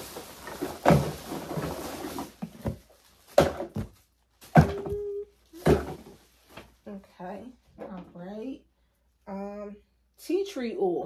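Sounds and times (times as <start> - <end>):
rustling: 0.0 - 7.1
bottles thudding down: 0.4 - 5.0, 5.6 - 6.2.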